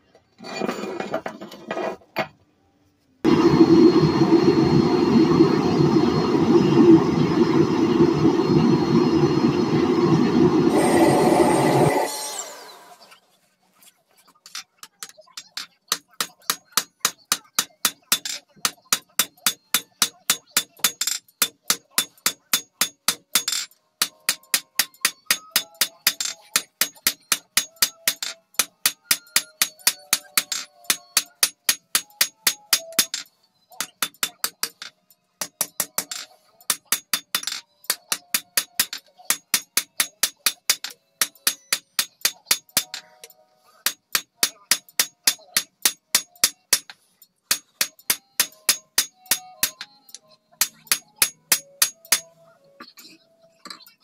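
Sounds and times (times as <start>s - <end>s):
hammer striking metal on anvil: 15.9s - 52.3s.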